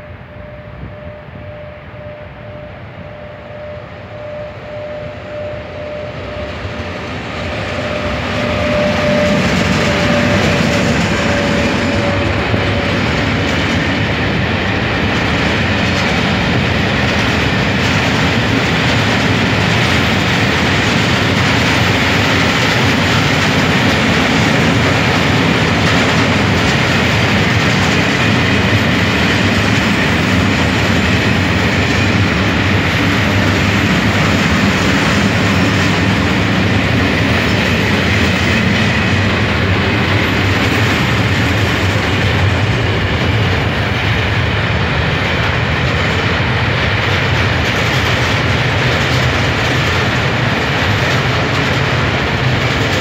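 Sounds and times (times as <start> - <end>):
electric locomotive whine: 0.0 - 53.0
train wheels rolling on rails: 0.0 - 53.0.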